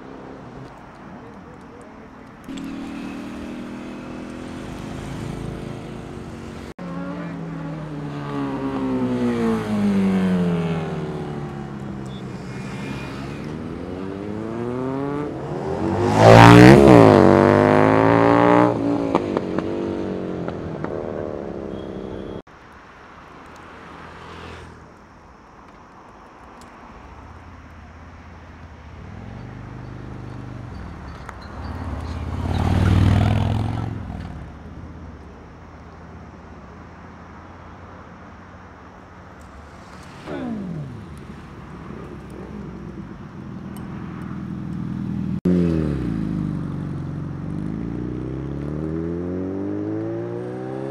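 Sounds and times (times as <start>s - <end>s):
motorcycle engines revving past: 0.0s - 22.5s, 23.2s - 25.0s, 28.8s - 35.4s, 36.7s - 50.9s
low engine sound: 38.5s - 48.8s.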